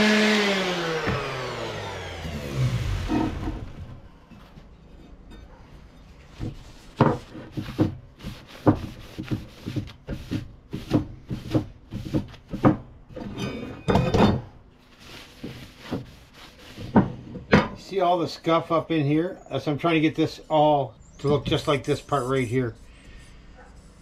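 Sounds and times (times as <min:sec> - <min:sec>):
faint metallic ring: 0:04.4 - 0:06.2
paper towel wiping metal: 0:06.4 - 0:12.7, 0:14.9 - 0:17.0.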